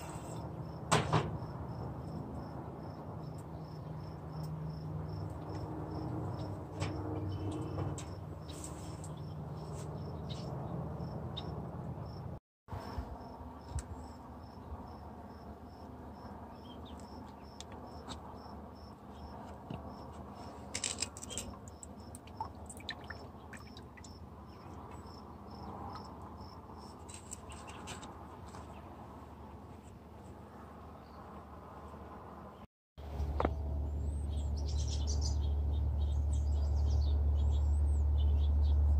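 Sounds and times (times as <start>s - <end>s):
cricket chirping: 1.4s - 6.5s, 11.0s - 12.2s, 13.2s - 19.3s, 21.3s - 27.0s.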